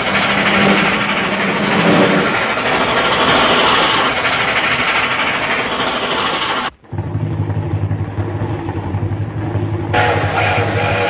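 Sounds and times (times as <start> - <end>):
cartoon steam train rushing past: 0.0 - 11.0
low droning hum: 6.7 - 11.0.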